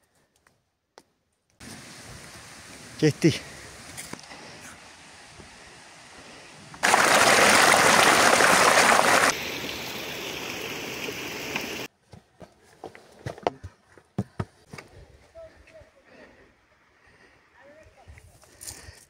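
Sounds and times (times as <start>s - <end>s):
stream splashing over stones: 6.8s - 11.9s.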